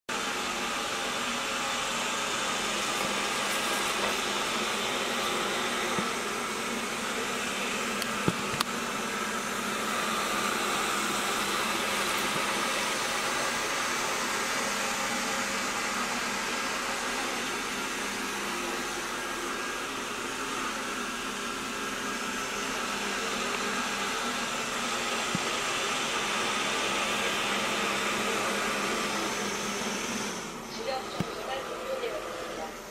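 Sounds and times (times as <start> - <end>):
robot vacuum fan whirring: 0.1 - 32.9.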